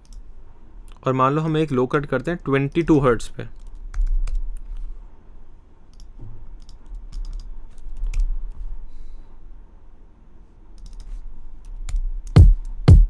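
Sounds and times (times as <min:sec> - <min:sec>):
keyboard typing: 0:05.9 - 0:08.3
deep kick drum hits: 0:12.4 - 0:13.0.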